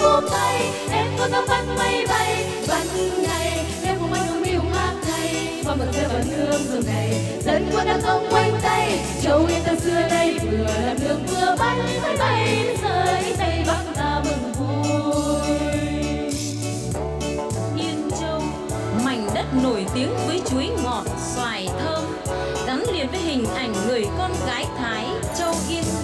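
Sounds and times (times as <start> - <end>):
women singing together: 0.0 - 16.3
backing track with bass beat: 0.0 - 26.0.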